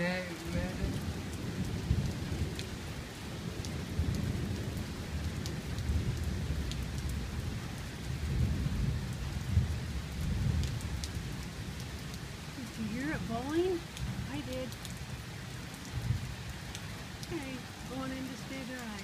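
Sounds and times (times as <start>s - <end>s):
thunder rumbling: 0.0s - 11.8s, 12.6s - 16.5s
steady rain: 0.0s - 19.0s
drips tapping on an awning: 10.5s - 19.0s.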